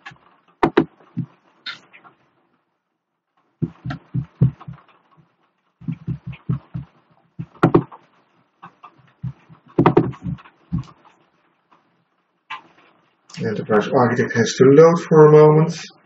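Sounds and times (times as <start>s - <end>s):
dull knocks on desk: 0.6s - 1.3s, 3.6s - 4.8s, 5.9s - 7.9s, 9.2s - 10.9s.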